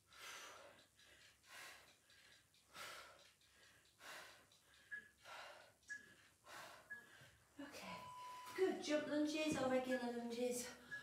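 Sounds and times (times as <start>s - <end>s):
woman breathing hard: 0.0s - 7.6s.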